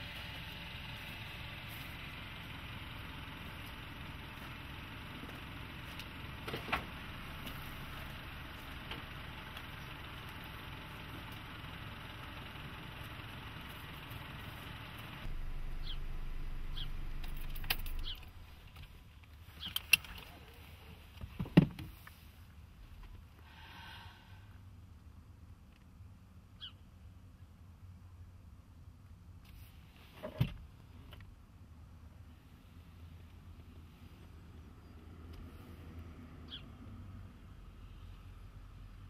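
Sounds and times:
car engine running: 0:00.0 - 0:19.8.

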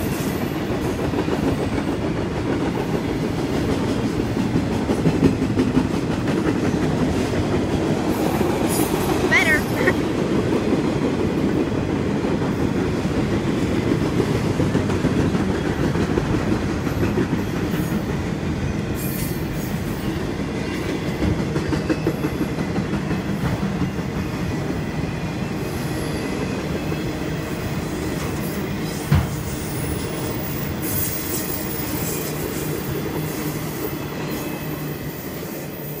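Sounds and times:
train wheels rumbling on rail: 0:00.0 - 0:36.0
clacking over rail joints: 0:00.8 - 0:09.3.

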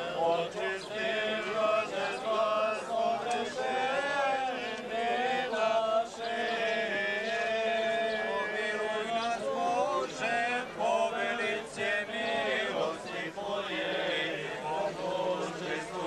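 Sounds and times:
men chanting a hymn: 0:00.0 - 0:16.0.

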